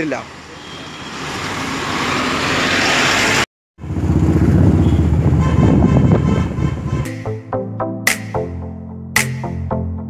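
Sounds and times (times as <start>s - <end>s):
street traffic noise: 0.0s - 7.3s
motorcycle engine running: 3.8s - 5.5s
wind rumble on microphone: 3.8s - 7.1s.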